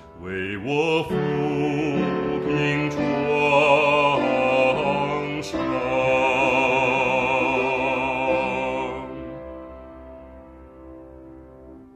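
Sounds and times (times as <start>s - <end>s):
man singing with vibrato: 0.0s - 9.5s
piano chords: 0.0s - 11.9s.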